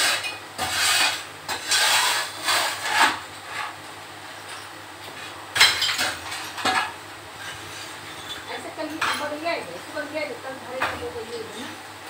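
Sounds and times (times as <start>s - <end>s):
rubble scraping on hard floor: 0.0s - 3.8s.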